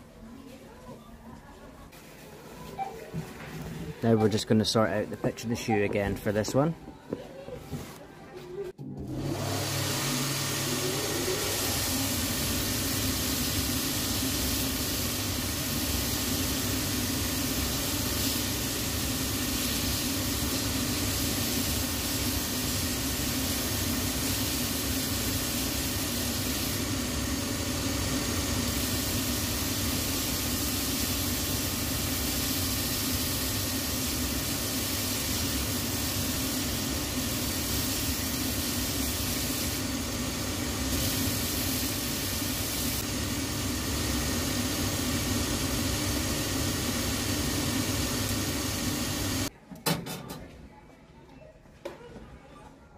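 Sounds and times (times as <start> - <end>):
finishing machine whirring: 8.8 - 49.5.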